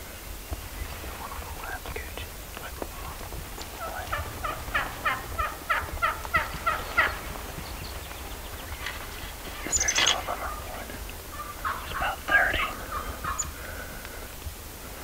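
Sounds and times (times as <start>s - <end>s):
turkey gobble: 3.0s - 13.6s
turkey yelps: 3.8s - 7.2s, 9.8s - 13.6s.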